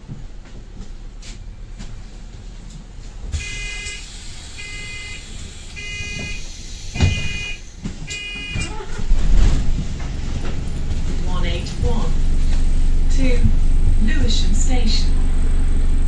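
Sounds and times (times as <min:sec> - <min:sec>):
bus engine rumble: 0:00.0 - 0:16.0
bus door warning beeps: 0:03.4 - 0:09.1.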